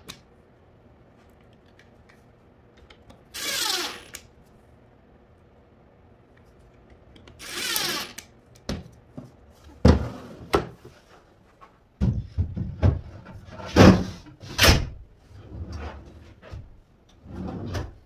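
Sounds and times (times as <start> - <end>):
impact driver driving screw: 3.4 - 4.3, 7.4 - 8.3
drawer sliding shut on metal slides: 17.2 - 18.0.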